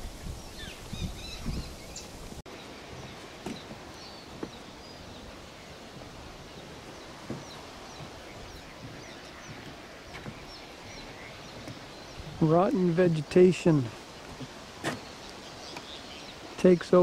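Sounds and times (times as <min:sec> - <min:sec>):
birds chirping: 0:00.0 - 0:17.0
breeze hiss: 0:00.0 - 0:17.0.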